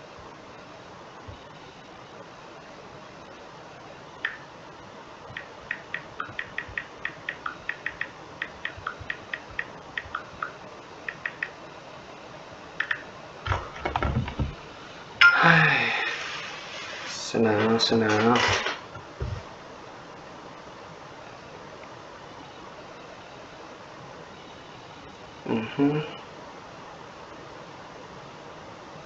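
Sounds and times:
computer keyboard typing: 5.3s - 11.6s, 12.8s - 13.0s.

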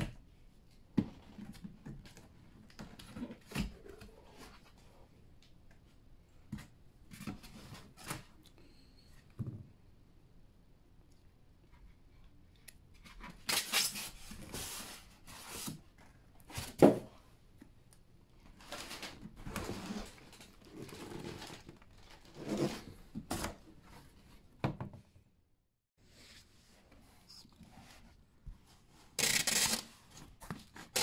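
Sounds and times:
cardboard scraping and rubbing: 18.7s - 23.6s.

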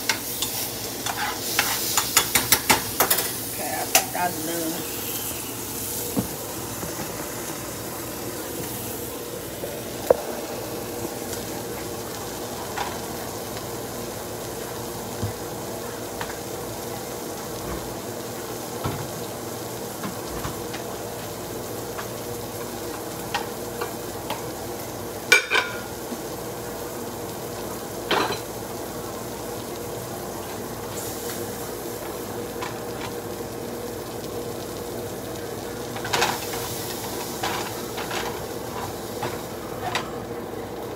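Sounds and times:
food sizzling in a pan: 0.0s - 40.9s
utensils clinking on dishes: 25.3s - 25.9s.

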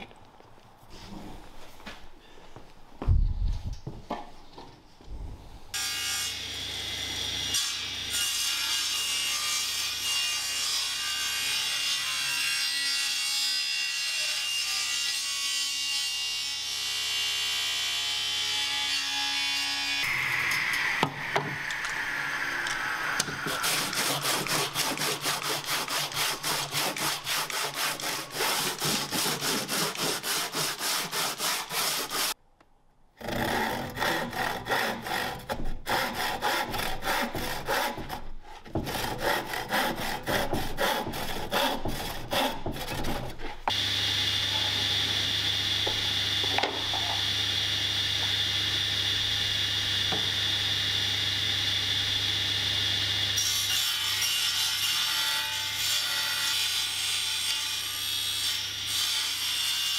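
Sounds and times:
table saw running: 19.4s - 32.3s, 43.7s - 54.2s
rasping strokes on wood: 23.0s - 32.4s, 33.2s - 43.8s
irregular scraping on wood: 23.2s - 32.4s, 33.2s - 43.8s.

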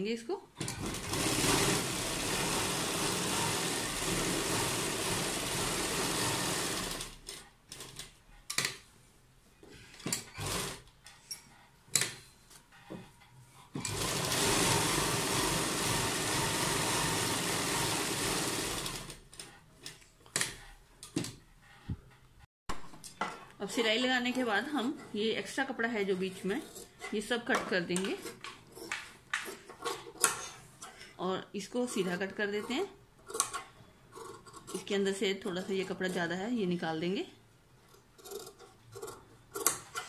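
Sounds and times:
sewing machine stitching: 0.6s - 8.2s, 10.1s - 10.9s, 13.7s - 20.6s, 37.9s - 40.0s.

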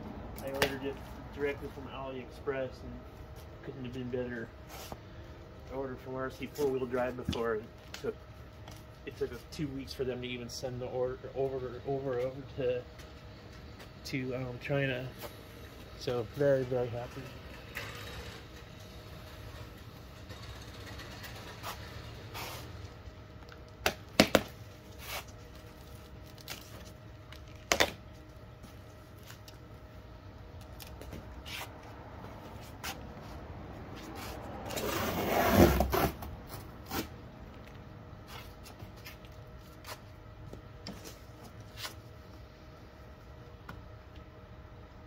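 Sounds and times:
cardboard flaps rustling and scraping: 34.0s - 37.1s.

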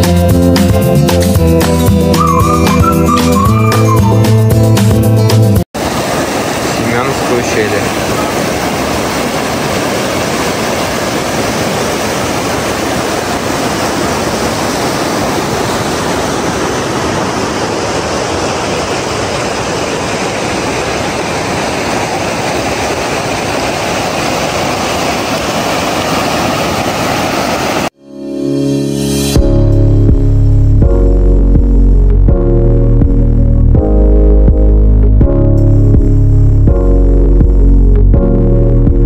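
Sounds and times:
river rushing over rocks: 5.8s - 27.9s.

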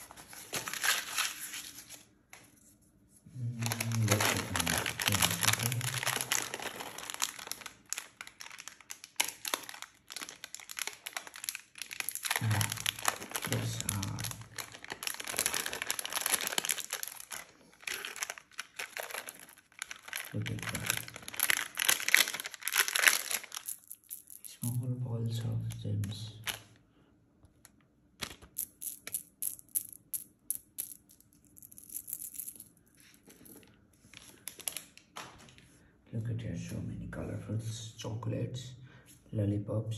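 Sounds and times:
plastic packet crinkling: 0.0s - 2.1s, 3.4s - 24.8s, 25.6s - 26.8s, 28.2s - 30.2s, 30.8s - 35.6s.

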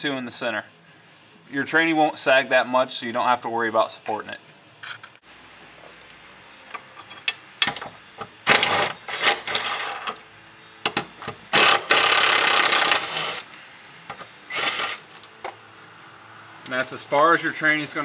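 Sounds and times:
cordless power tool running: 14.5s - 15.0s.

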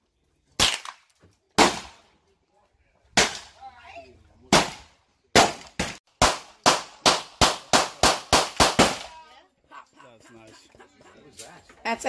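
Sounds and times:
gunshots: 1.6s - 2.0s, 3.2s - 3.6s, 4.5s - 9.1s.

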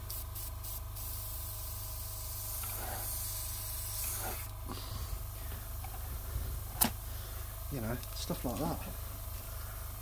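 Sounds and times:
airbrush spraying hiss: 0.0s - 7.1s.

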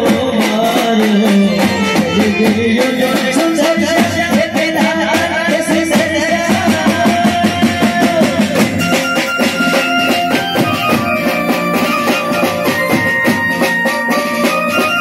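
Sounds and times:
drum kit and dholak beat: 0.0s - 15.0s
keyboard melody: 0.8s - 3.7s, 8.5s - 15.0s.

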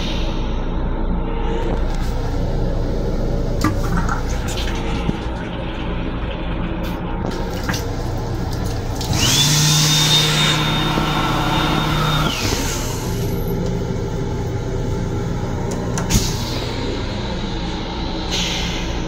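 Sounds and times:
train running noise: 0.0s - 9.5s, 10.8s - 19.0s
hand dryer blower whine: 9.0s - 13.4s.

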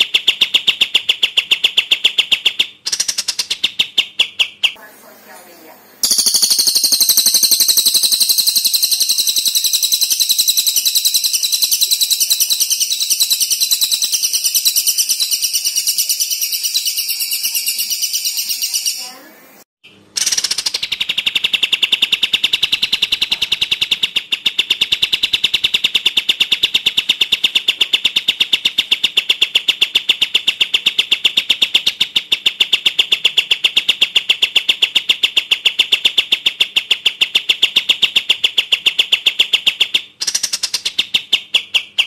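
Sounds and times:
songbird repeating high notes: 6.0s - 19.4s.

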